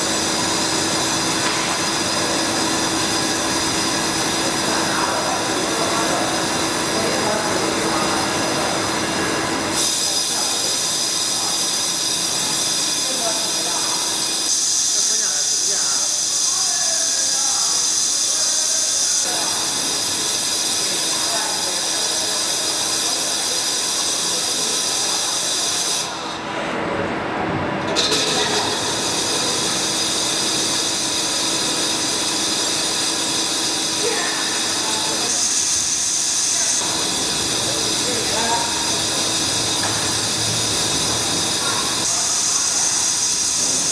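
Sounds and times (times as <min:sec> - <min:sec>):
lathe cutting metal hiss: 0:00.0 - 0:26.4, 0:28.0 - 0:43.9
machine steady tone: 0:00.0 - 0:26.5, 0:27.9 - 0:43.9
high-pitched whine: 0:27.9 - 0:43.9.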